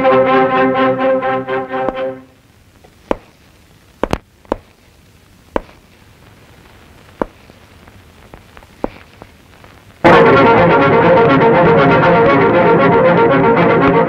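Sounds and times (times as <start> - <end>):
orchestral film music with brass: 0.0 - 2.2
quiet hiss: 0.0 - 14.0
sharp short knocks: 3.1 - 3.4, 4.0 - 4.8, 5.6 - 5.8, 7.2 - 7.4, 8.8 - 9.2.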